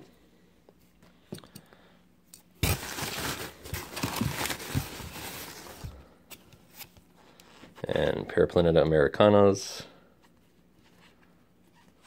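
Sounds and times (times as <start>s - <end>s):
paper rustling and crinkling: 2.6s - 7.1s.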